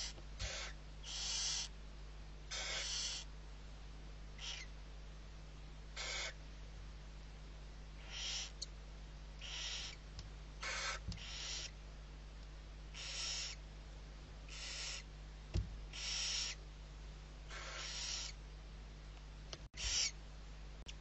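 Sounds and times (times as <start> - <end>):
owl chicks hissing calls: 0.0 - 1.8, 2.5 - 3.3, 4.4 - 4.8, 5.9 - 6.4, 8.0 - 8.7, 9.4 - 11.8, 12.9 - 13.7, 14.4 - 15.1, 15.9 - 16.6, 17.5 - 18.4, 19.8 - 20.2.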